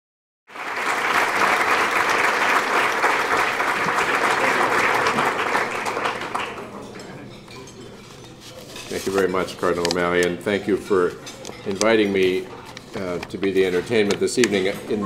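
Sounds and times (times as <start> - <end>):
audience applauding: 0.5 - 7.0.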